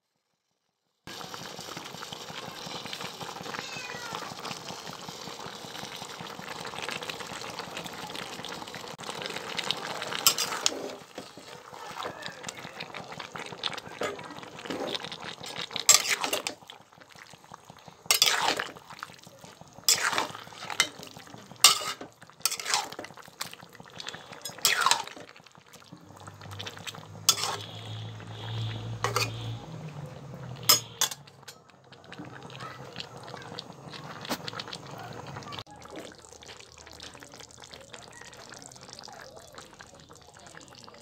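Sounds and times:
metal spatula scraping a pot: 10.1s - 11.5s, 14.0s - 16.6s, 18.1s - 18.8s, 19.9s - 23.2s, 24.0s - 25.2s, 26.6s - 29.6s, 30.6s - 31.3s.

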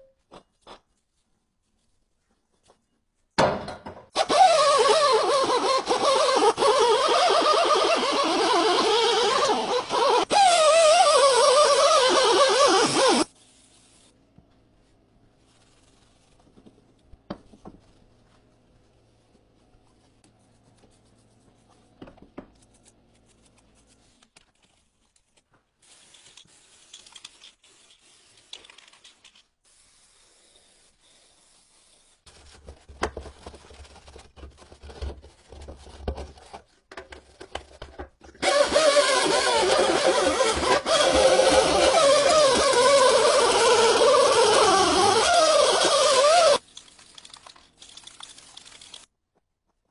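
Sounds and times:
power tool running: 38.4s - 46.6s.

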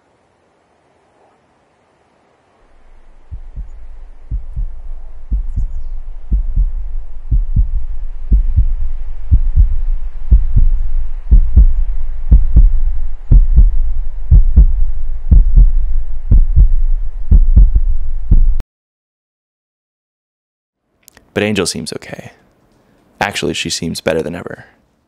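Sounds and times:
deep steady rumble: 2.7s - 18.6s
heartbeat double thump: 3.0s - 18.6s.

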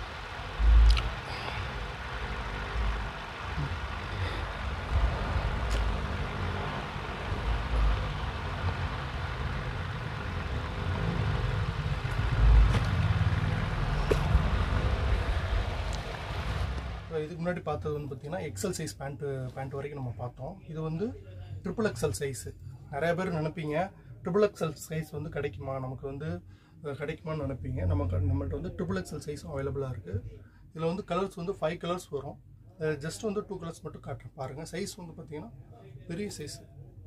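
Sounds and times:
low thumps: 0.0s - 17.1s
steady background rumble: 0.0s - 37.0s.

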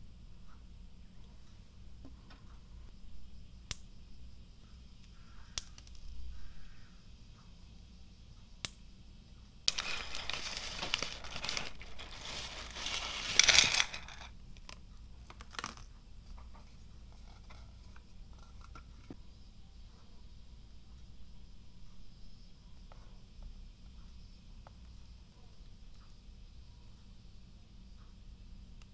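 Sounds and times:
foil pouch crinkling: 9.7s - 15.9s.

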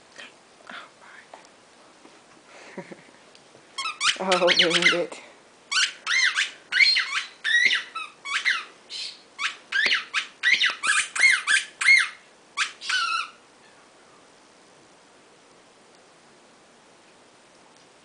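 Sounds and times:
dog whining: 5.7s - 8.7s, 9.4s - 13.8s.

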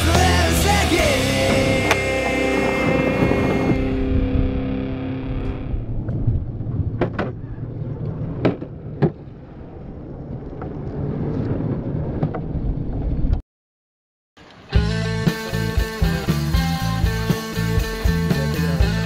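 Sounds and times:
skateboard wheels rolling on concrete: 0.0s - 4.6s, 5.4s - 13.4s.

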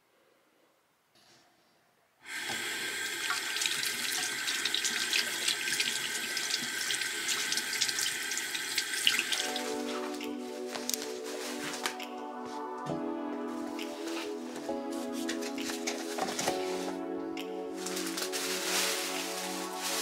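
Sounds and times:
tap water running into sink: 2.3s - 9.7s.

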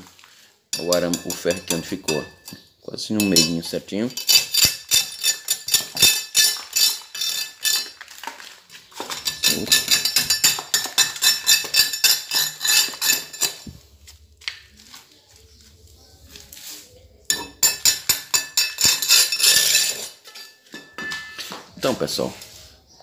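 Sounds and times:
metal tool scraping concrete: 0.8s - 13.8s, 17.3s - 21.0s.

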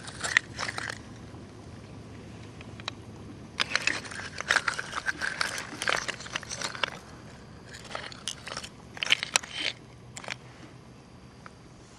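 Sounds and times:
oyster shells clicking: 0.0s - 1.2s, 3.6s - 10.4s.

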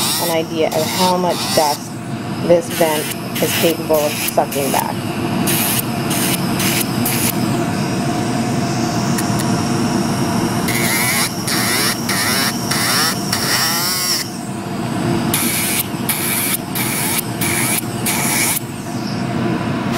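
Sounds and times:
nail filing strokes: 0.0s - 1.8s, 2.7s - 4.7s, 5.5s - 7.4s, 10.7s - 14.3s, 15.4s - 18.7s
dust vent fan running: 0.0s - 19.9s.

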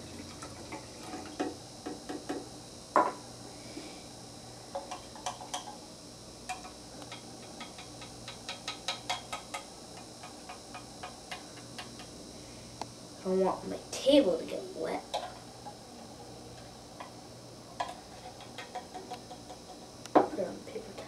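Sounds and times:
glass set down on wooden table: 3.0s - 3.2s.

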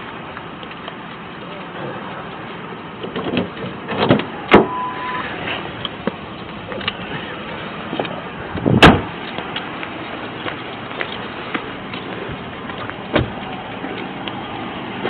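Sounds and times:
car door slamming: 3.2s - 5.1s, 8.6s - 9.2s, 13.1s - 13.4s
short beep: 4.6s - 5.3s.

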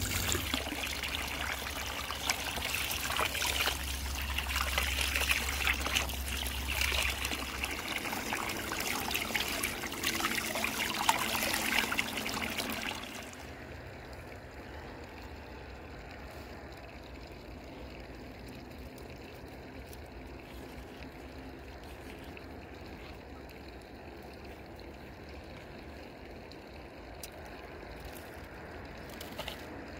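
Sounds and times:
water pouring over hands: 0.0s - 13.5s
water splashing into basin: 0.0s - 13.5s.

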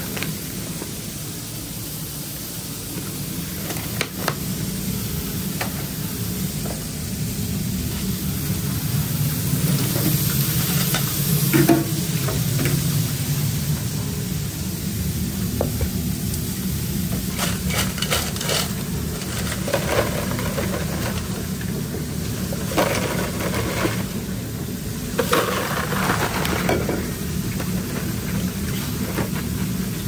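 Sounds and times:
kitchen equipment hum: 0.0s - 30.0s
fries rattling into boxes: 17.1s - 30.0s.

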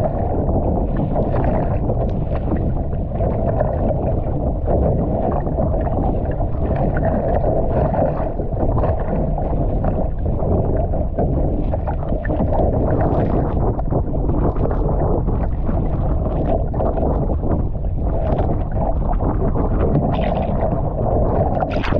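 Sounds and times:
choppy sea slapping a hull: 0.0s - 21.9s
wind rumble on microphone: 0.0s - 21.9s
paddle splashes: 15.4s - 20.8s.

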